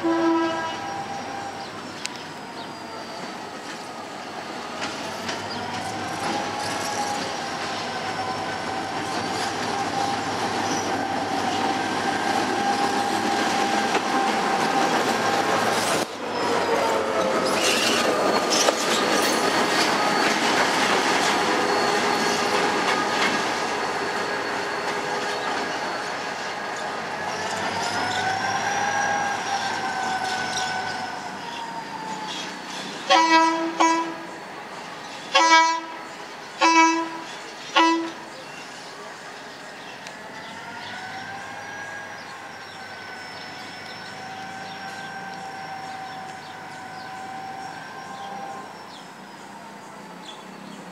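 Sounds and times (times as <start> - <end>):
wheel flanges squealing: 4.8 - 33.0.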